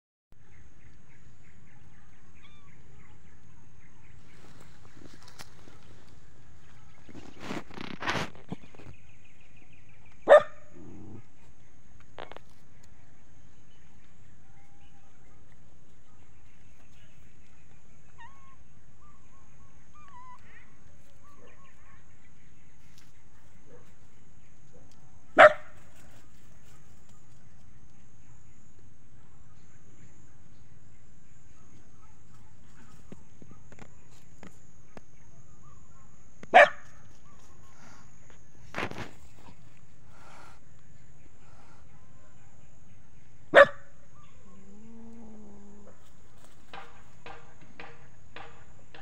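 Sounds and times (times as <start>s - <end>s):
dog barking: 10.3s - 10.7s, 24.7s - 25.8s, 36.0s - 36.9s, 43.5s - 43.9s.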